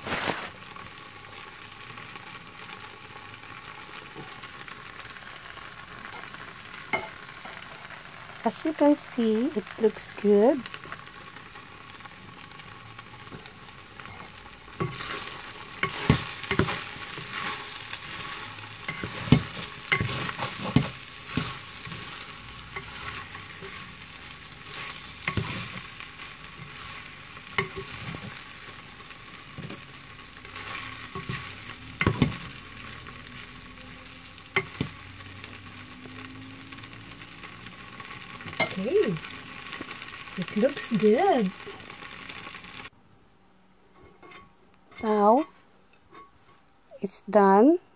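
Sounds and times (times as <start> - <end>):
food sizzling in a pan: 0.0 - 42.9, 44.0 - 47.7
utensil scraping and knocking pan: 14.2 - 18.2, 18.8 - 24.0, 44.0 - 45.5.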